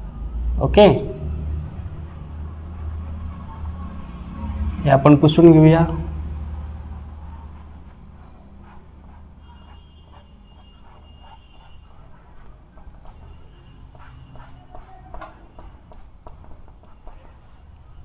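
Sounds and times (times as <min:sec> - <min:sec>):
duster rubbing on a whiteboard: 0:01.3 - 0:02.2, 0:02.8 - 0:04.1, 0:07.0 - 0:17.3.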